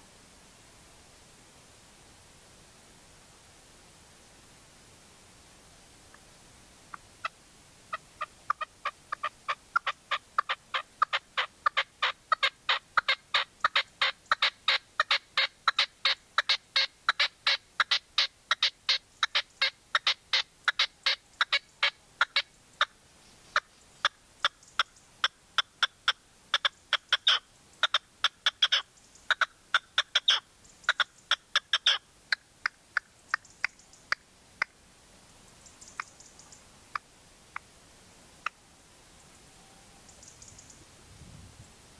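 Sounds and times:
partridge calling: 6.9s - 34.8s, 35.6s - 37.7s, 40.0s - 40.8s.

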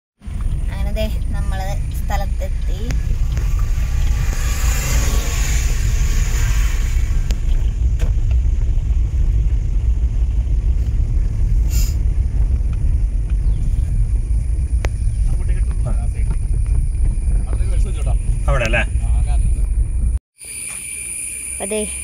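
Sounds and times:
car engine and tyre rumble: 0.2s - 20.2s
hiss: 11.6s - 12.0s.

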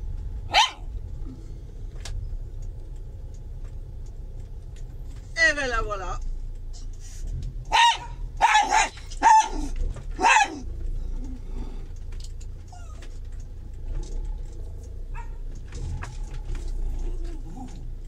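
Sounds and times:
vehicle engine running: 0.0s - 18.0s.

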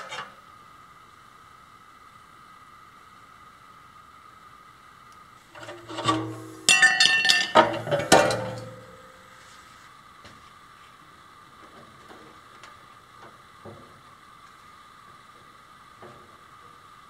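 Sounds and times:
metal tube clanging on concrete: 5.6s - 9.2s.

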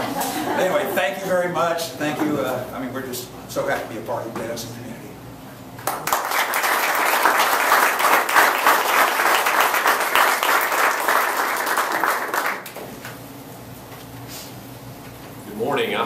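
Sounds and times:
audience applauding: 5.8s - 12.8s.

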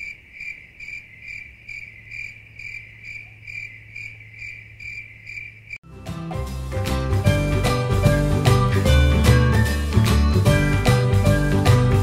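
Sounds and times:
cricket chirping: 0.0s - 5.8s
cheerful music: 5.8s - 12.0s.

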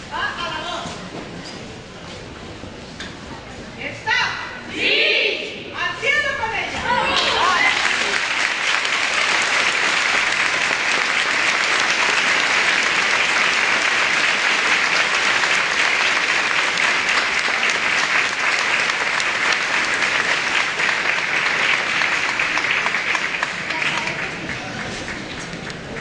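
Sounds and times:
crowd applauding: 7.1s - 26.0s.

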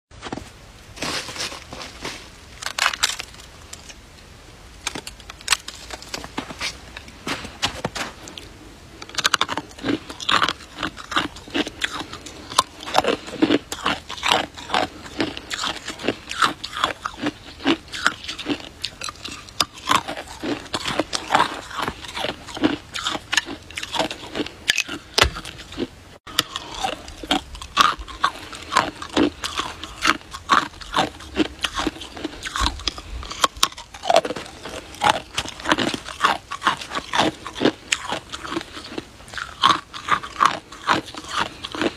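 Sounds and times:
ice crunching between teeth: 2.6s - 3.9s, 7.7s - 41.9s.

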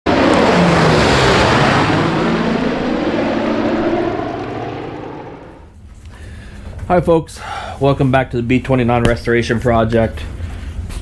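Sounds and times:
propeller aircraft engines droning: 0.0s - 6.6s.

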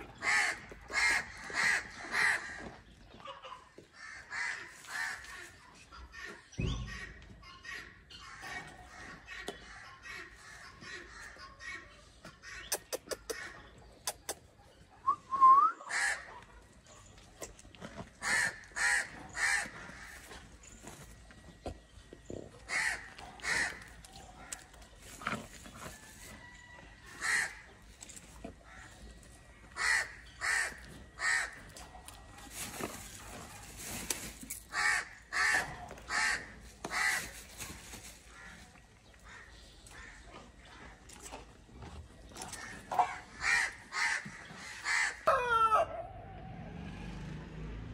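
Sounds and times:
crows cawing: 0.2s - 2.8s, 3.9s - 5.3s, 15.9s - 16.3s, 18.2s - 20.4s, 22.7s - 24.7s, 27.2s - 27.7s, 29.7s - 31.7s, 34.7s - 37.4s, 42.5s - 45.8s.

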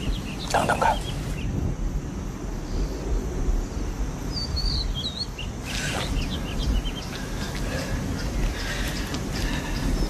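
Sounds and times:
bird chirping: 0.0s - 1.6s, 4.3s - 10.0s
low wind rumble: 0.0s - 10.0s.

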